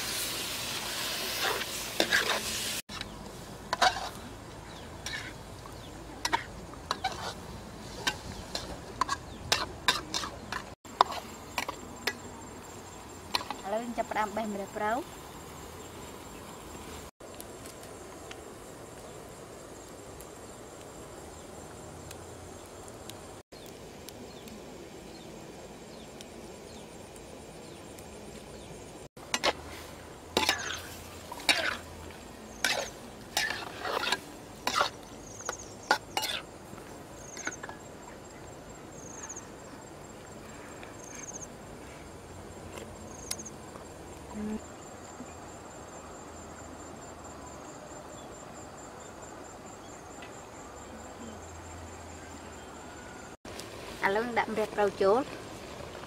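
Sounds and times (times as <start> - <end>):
metal utensil scraping a wok: 0.0 - 5.5, 6.2 - 12.2, 29.3 - 32.0, 32.6 - 35.0, 35.9 - 36.5
insects chirring: 0.0 - 56.0.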